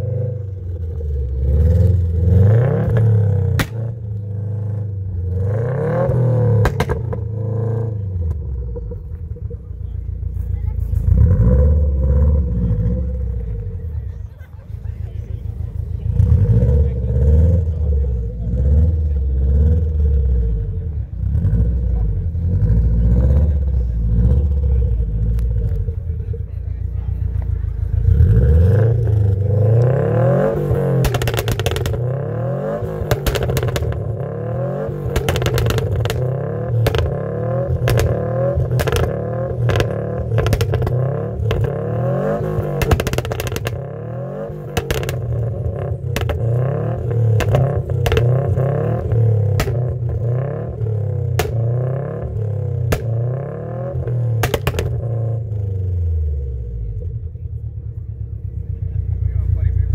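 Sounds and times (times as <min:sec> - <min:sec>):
car engine revving hard: 0:00.0 - 0:08.9, 0:11.0 - 0:13.8, 0:16.0 - 0:25.9, 0:27.8 - 0:56.5
exhaust cracks: 0:00.0 - 0:59.9.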